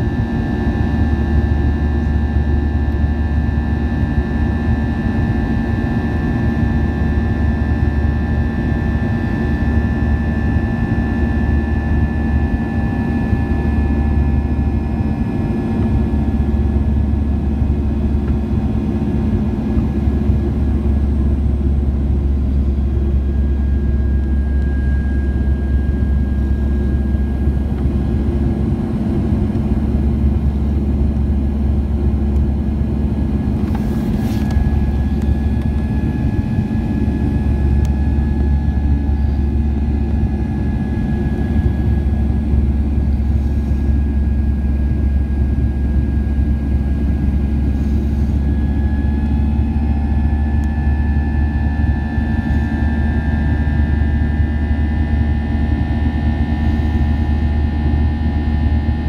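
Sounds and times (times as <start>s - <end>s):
airplane cabin engine drone: 0.0s - 59.0s
faint high whine: 21.8s - 28.6s, 33.6s - 59.0s.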